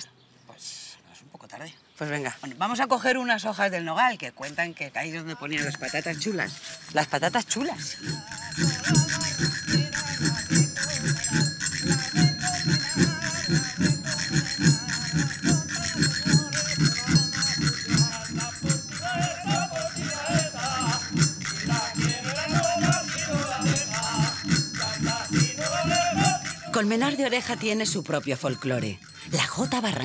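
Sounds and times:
jingling: 4.4s - 30.0s
metallic ringing of brass mortar: 5.2s - 30.0s
friction drum beat: 5.6s - 28.2s.

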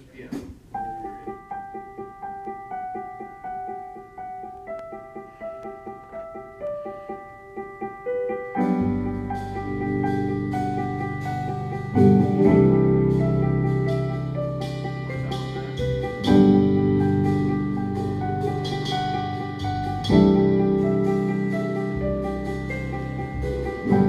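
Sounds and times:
keyboard playing repeated notes: 0.7s - 24.0s
bass: 8.6s - 24.0s
drum kit with cymbals: 8.6s - 24.0s.

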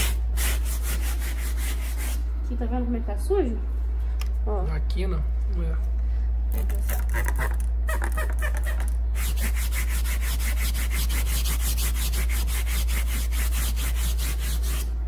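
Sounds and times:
steady low hum: 0.0s - 15.0s
brush scrubbing fabric upholstery: 9.2s - 14.9s.

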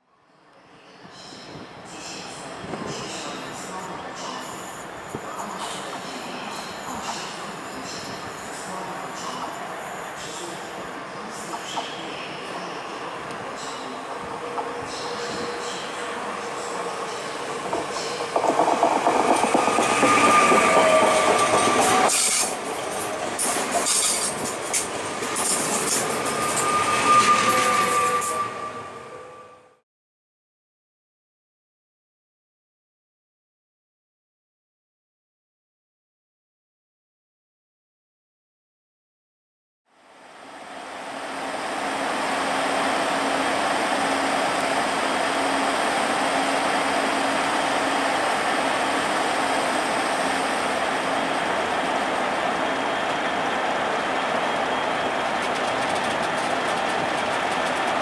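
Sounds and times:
train high whine: 1.0s - 29.8s, 39.9s - 58.0s
electric locomotive hum: 1.5s - 29.8s, 40.0s - 58.0s
train wheels rolling on rails: 2.6s - 28.6s, 41.2s - 58.0s.

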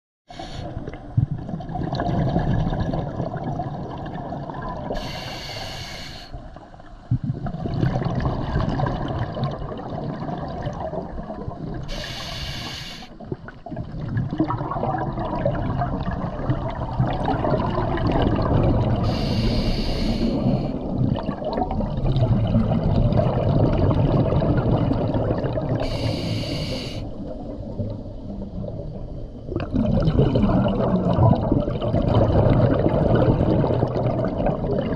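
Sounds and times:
exhaled bubbles rushing: 0.3s - 5.1s, 7.0s - 12.1s, 13.2s - 26.1s, 27.1s - 34.9s
hissing regulator inhalations: 5.0s - 6.4s, 11.9s - 13.2s, 19.1s - 20.8s, 25.8s - 27.1s.

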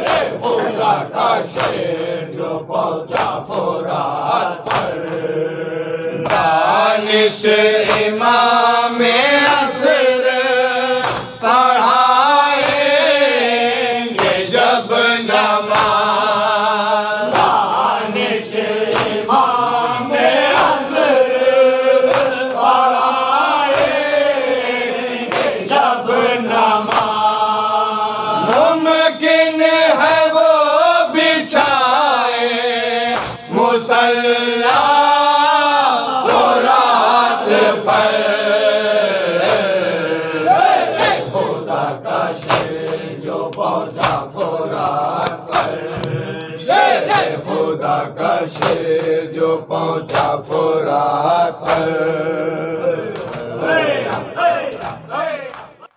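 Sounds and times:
hands slapping chests: 0.0s - 2.2s, 3.1s - 3.8s, 4.6s - 5.3s, 6.2s - 6.8s, 7.8s - 8.4s, 11.0s - 13.2s, 14.1s - 14.6s, 15.3s - 16.2s, 17.3s - 17.9s, 18.8s - 19.5s, 20.4s - 21.1s, 22.0s - 22.9s, 23.6s - 24.2s, 25.2s - 25.8s, 26.8s - 27.3s, 28.4s - 28.8s, 33.1s - 33.5s, 39.4s - 39.8s, 40.5s - 41.7s, 42.3s - 47.6s, 48.4s - 49.2s, 50.0s - 50.8s, 51.6s - 52.3s, 53.1s - 53.4s, 54.0s - 55.9s
men chanting in unison: 0.0s - 55.9s.

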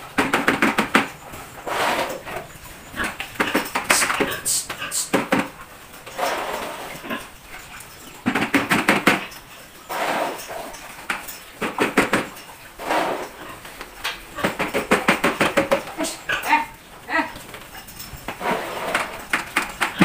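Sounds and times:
piglets grunting and squealing: 1.4s - 8.6s, 12.7s - 20.0s.

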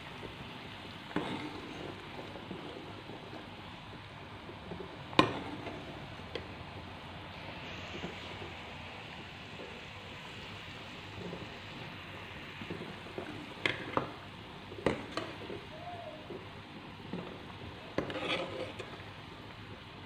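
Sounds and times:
curry bubbling and sizzling: 0.0s - 20.0s
ladle clinking and scraping pan: 17.9s - 19.0s.

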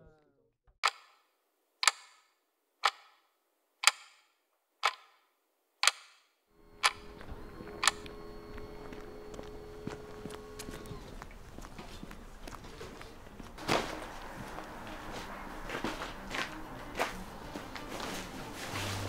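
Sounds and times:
clock ticks: 0.8s - 1.2s, 1.8s - 3.2s, 3.8s - 5.2s, 5.8s - 6.2s, 6.8s - 8.1s
background hum: 6.6s - 19.0s.

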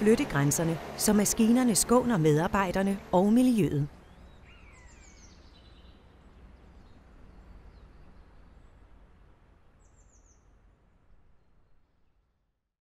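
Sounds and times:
low outdoor rumble: 0.0s - 12.4s
bird chirps: 4.0s - 6.0s.

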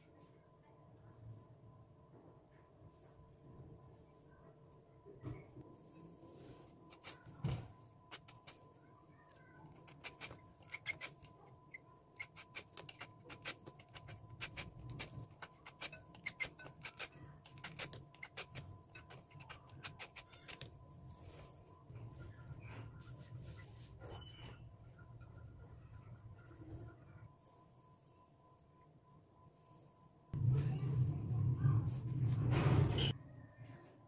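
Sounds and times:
peeler scraping potato skin: 6.9s - 7.3s, 8.1s - 8.6s, 9.7s - 20.8s.

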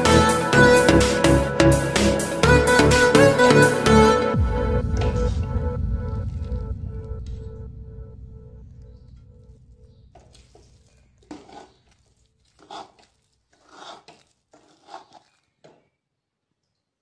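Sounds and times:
steel spoon scraping a pan: 10.4s - 15.5s.

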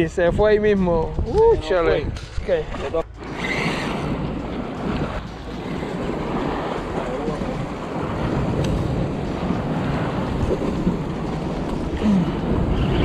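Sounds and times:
wind rumbling on microphone: 0.0s - 13.0s
waves splashing against rocks: 3.3s - 13.0s.

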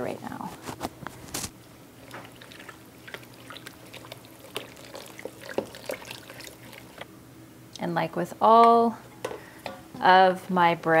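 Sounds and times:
wooden spoon stirring in metal bowl: 2.0s - 7.1s.

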